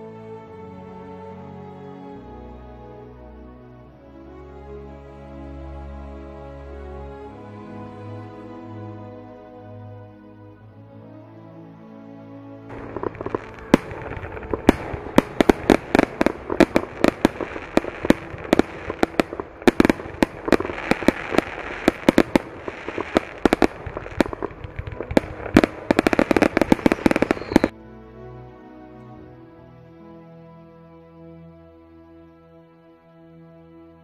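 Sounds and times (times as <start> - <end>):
fireworks bangs and pops: 12.7 - 27.7.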